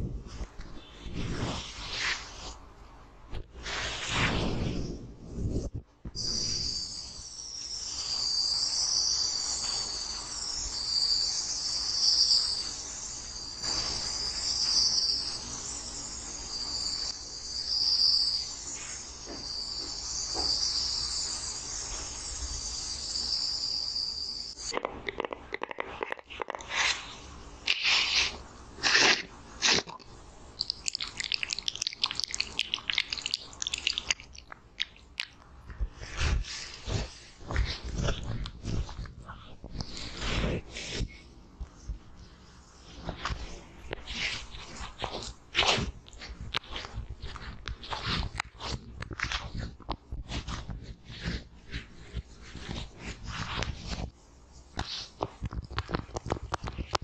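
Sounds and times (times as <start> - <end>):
hands tapping and rubbing mat: 54.7 - 57.0.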